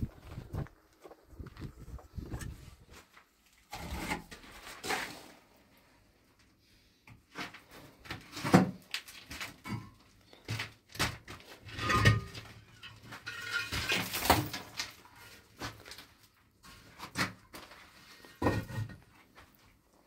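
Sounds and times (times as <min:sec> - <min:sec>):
objects knocking and clattering: 0:07.4 - 0:15.1, 0:18.3 - 0:19.2.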